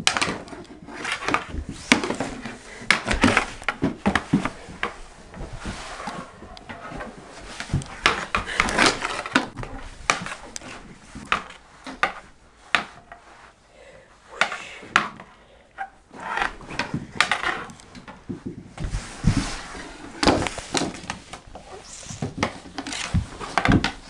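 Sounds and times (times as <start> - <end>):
hockey sticks clacking: 0.0 - 13.5, 14.4 - 24.0
scuffing on floor: 1.0 - 12.4, 18.0 - 24.0.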